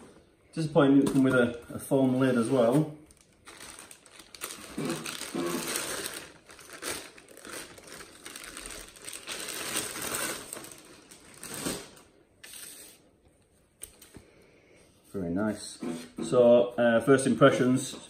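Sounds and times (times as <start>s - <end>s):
plastic bag crinkling: 1.0s - 12.8s.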